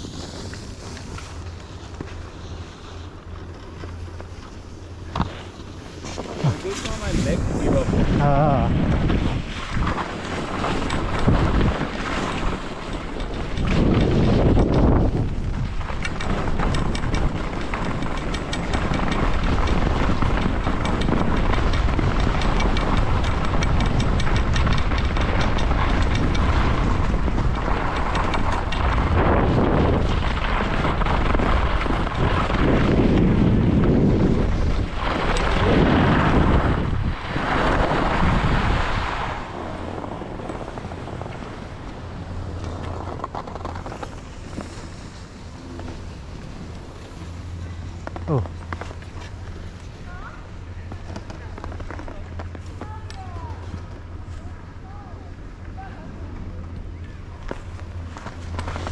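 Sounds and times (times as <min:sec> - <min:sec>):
ski edges scraping snow: 0:00.0 - 0:50.0
wind rushing over microphone: 0:04.9 - 0:48.6.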